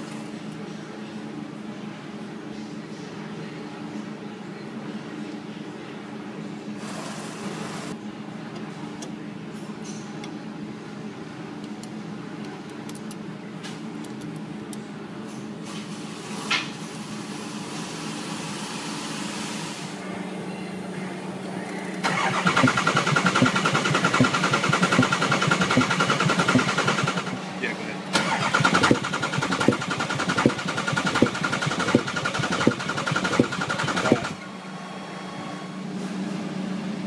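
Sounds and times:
steady low hum: 19.9s - 37.0s
diesel engine cranking: 22.0s - 27.4s, 28.1s - 34.5s.

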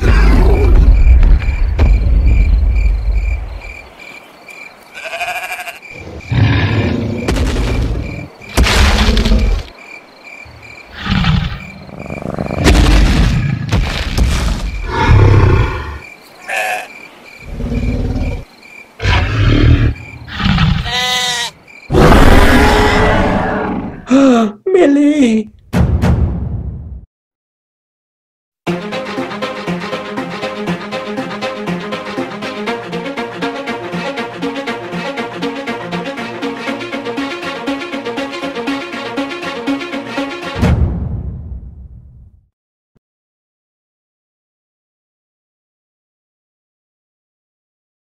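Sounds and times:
crickets chirping: 0.0s - 12.7s, 14.3s - 24.0s
sheep bleating: 4.9s - 5.9s, 16.4s - 17.0s, 20.8s - 21.6s
dinosaur roars and growls: 6.0s - 8.1s, 14.8s - 16.0s, 17.4s - 20.9s, 21.9s - 24.2s.

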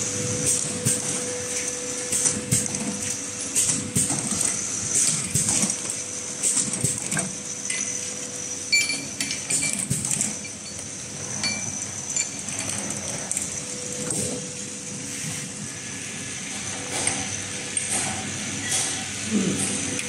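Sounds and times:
capping machine hum and whine: 0.0s - 20.0s
glass jars clinking: 11.4s - 12.4s.

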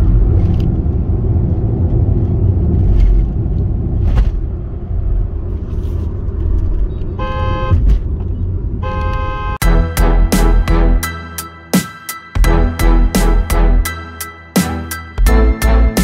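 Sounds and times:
road and engine rumble: 0.0s - 16.0s
vehicle horn: 7.2s - 7.8s, 8.8s - 11.3s.

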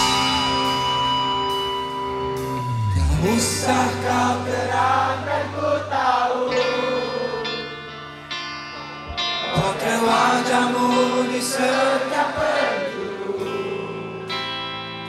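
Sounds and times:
electric guitars: 0.0s - 15.0s
live rock band playing: 0.0s - 15.0s
voices singing: 3.1s - 8.0s, 9.3s - 14.0s.

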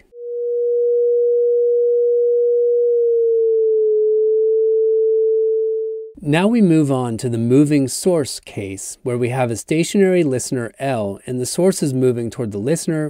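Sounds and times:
sine tone sliding down in pitch: 0.0s - 6.2s.

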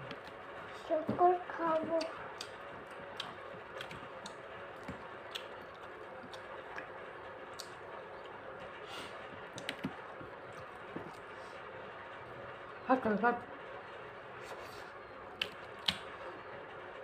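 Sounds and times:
chewing: 1.7s - 6.9s.

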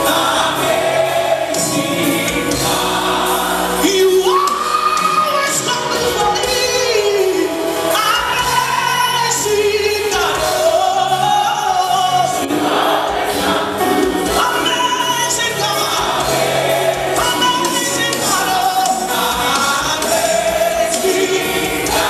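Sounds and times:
backing choir and band: 0.0s - 22.0s.

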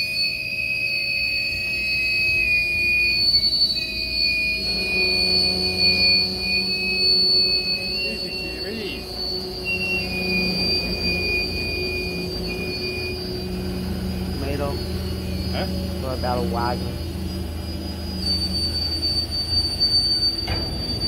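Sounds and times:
steel wheels squealing: 0.0s - 21.0s
train rumbling: 4.6s - 21.0s.

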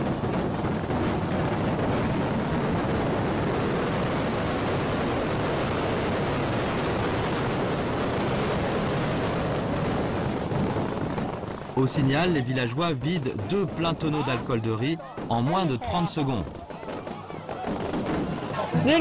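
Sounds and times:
crowd clamour: 13.4s - 19.0s.

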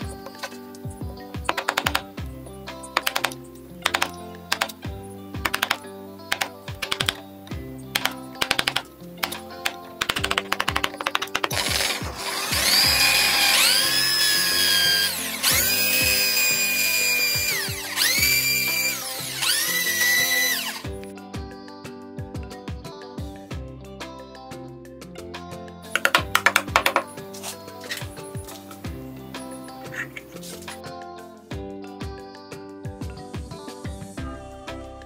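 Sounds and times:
background music: 0.0s - 35.0s
chisel chipping wood: 1.5s - 2.1s, 3.0s - 4.7s, 5.5s - 7.2s, 8.0s - 12.0s
electric drill whining: 8.0s - 21.0s.

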